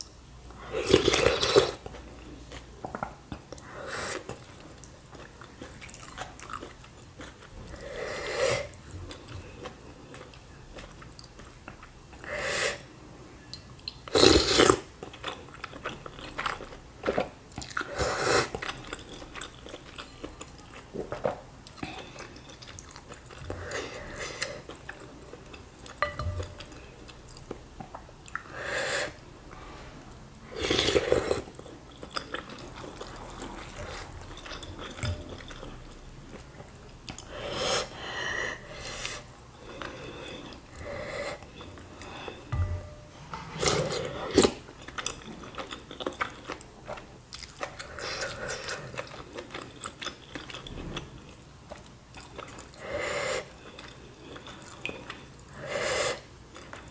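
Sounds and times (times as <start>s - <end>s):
close chewing and biting: 44.3s - 52.8s.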